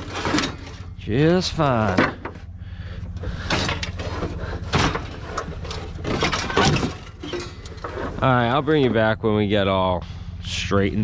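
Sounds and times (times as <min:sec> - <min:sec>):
scrap metal knocking and clattering: 0:00.0 - 0:02.5, 0:03.1 - 0:09.2
steady low hum: 0:00.0 - 0:11.0.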